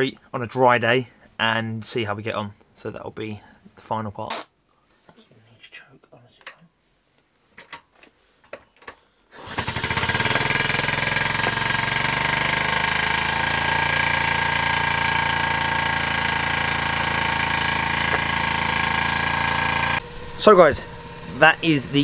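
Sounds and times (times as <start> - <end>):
motorcycle engine idling: 9.6 - 22.0.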